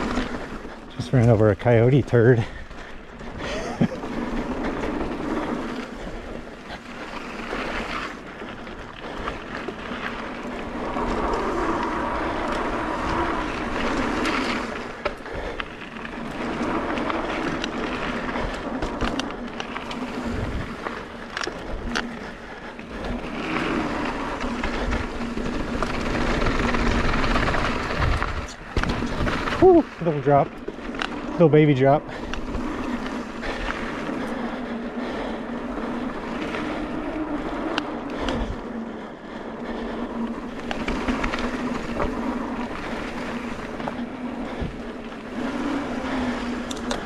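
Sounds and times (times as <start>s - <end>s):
bike rattling: 0.0s - 47.0s
tyres rolling over dirt and rock: 0.0s - 47.0s
bike knocking over bumps: 24.2s - 29.8s.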